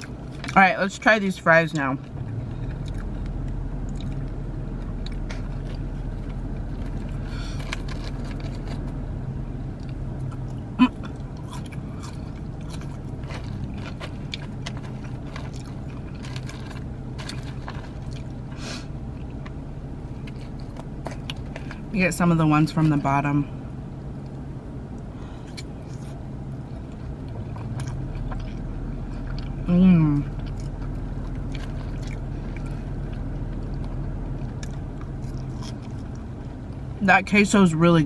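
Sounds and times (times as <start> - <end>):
low hum of car: 0.0 - 38.0
person chewing: 2.0 - 9.0, 9.7 - 19.6, 24.2 - 29.7, 30.3 - 36.4.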